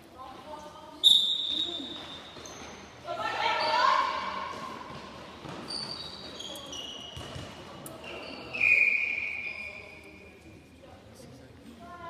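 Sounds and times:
shoes squeaking on hall floor: 0:00.9 - 0:10.6.

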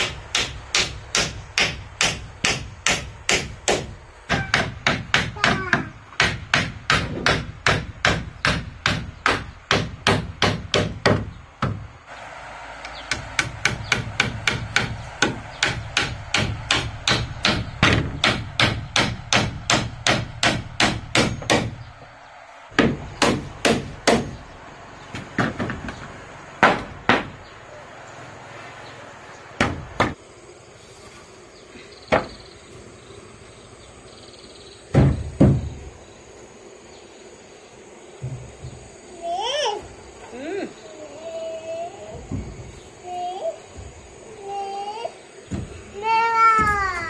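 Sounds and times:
hammer driving nails into wood: 0:00.0 - 0:11.8, 0:13.1 - 0:21.8, 0:22.8 - 0:24.4.

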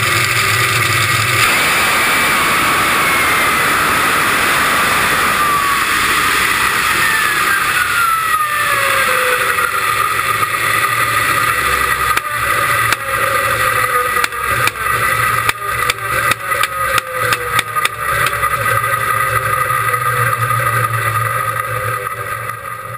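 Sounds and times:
falling engine whine: 0:00.0 - 0:22.9
low engine rumble: 0:00.0 - 0:22.9
sharp clicks and pops: 0:05.4 - 0:20.0.

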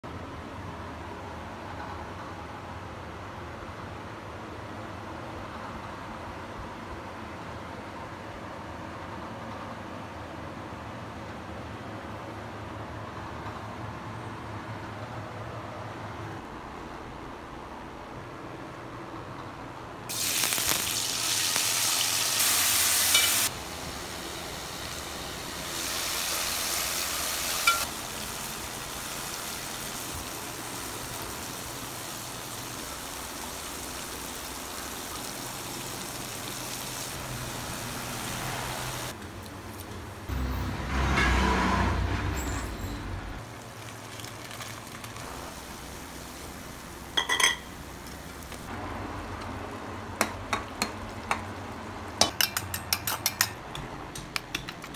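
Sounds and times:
vegetables sizzling in oil: 0:20.1 - 0:39.2, 0:43.4 - 0:48.7
spoon clinking against pot: 0:23.1 - 0:23.4, 0:47.2 - 0:47.7, 0:52.2 - 0:54.9.

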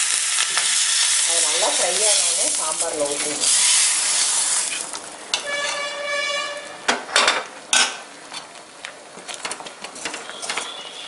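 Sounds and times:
hot oil sizzling: 0:00.0 - 0:06.7.

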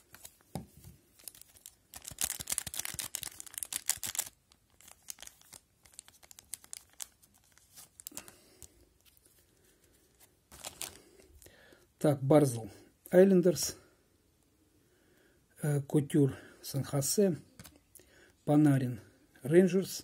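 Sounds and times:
wrapper crinkling and tearing: 0:01.1 - 0:09.3, 0:10.5 - 0:11.5
cards handled and slid out: 0:17.6 - 0:17.8.

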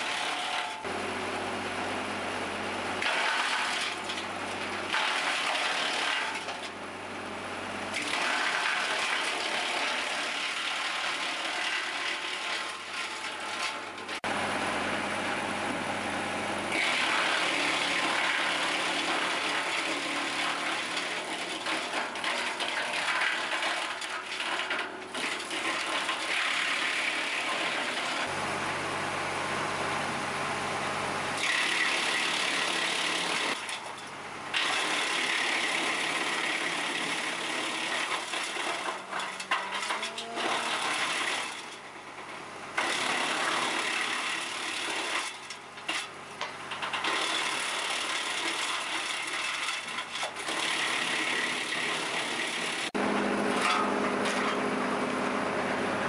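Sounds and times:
wood chipper chipping branches: 0:00.0 - 0:56.0
low machine hum: 0:00.8 - 0:04.9, 0:14.2 - 0:18.4, 0:28.3 - 0:31.5, 0:53.0 - 0:56.0.

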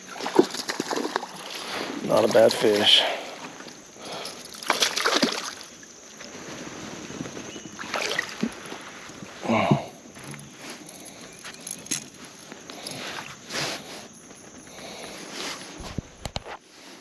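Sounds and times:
faint water: 0:00.0 - 0:16.0
wind noise: 0:15.7 - 0:16.5.

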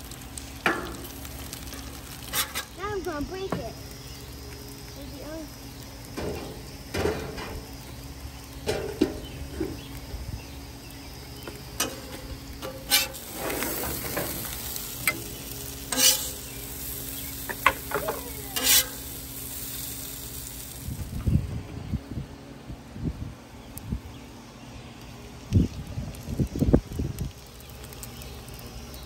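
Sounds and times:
potatoes sizzling on griddle: 0:00.0 - 0:22.1, 0:24.0 - 0:29.0
metal spatula scraping steel: 0:02.2 - 0:02.7, 0:12.6 - 0:14.4, 0:15.9 - 0:16.4, 0:18.6 - 0:19.0.

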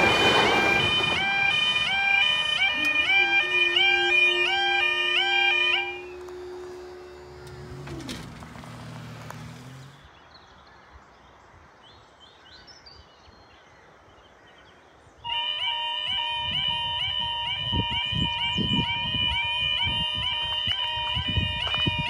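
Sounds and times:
level crossing alarm warbling: 0:00.0 - 0:09.0, 0:15.3 - 0:22.0
passing train: 0:00.0 - 0:10.1.

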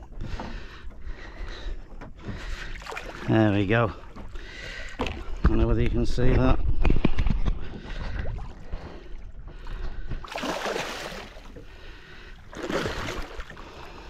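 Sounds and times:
lapping water: 0:00.0 - 0:05.7, 0:07.3 - 0:14.0
fish splashing at surface: 0:10.3 - 0:11.6.

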